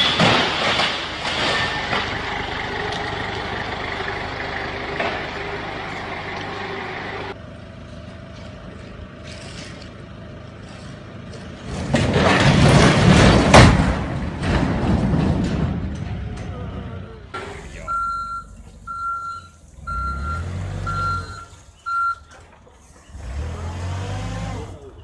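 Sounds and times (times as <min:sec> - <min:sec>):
trailer body crashing to ground: 0:00.0 - 0:02.3, 0:11.6 - 0:16.7.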